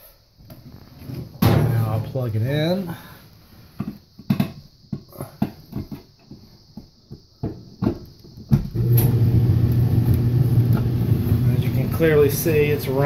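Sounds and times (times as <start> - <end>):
dryer drum motor humming: 8.7 - 13.0.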